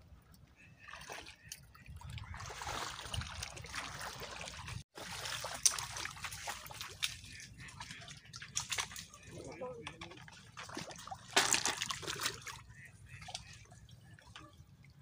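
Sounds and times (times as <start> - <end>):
water splashing among rocks: 2.0 - 12.6.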